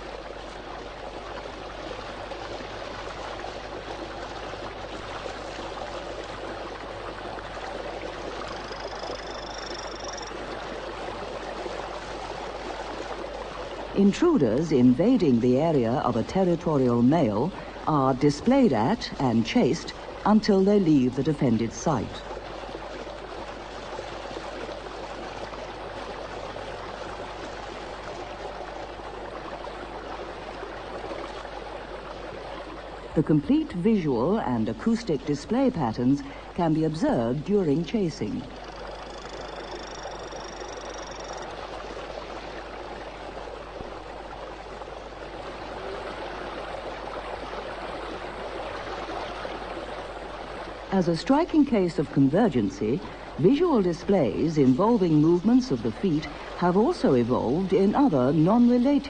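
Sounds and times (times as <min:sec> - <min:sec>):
torrent stream rushing: 0:00.0 - 0:59.0
high-pitched frog call: 0:08.4 - 0:10.4, 0:38.5 - 0:41.6
fast-flowing stream rushing: 0:38.5 - 0:51.5.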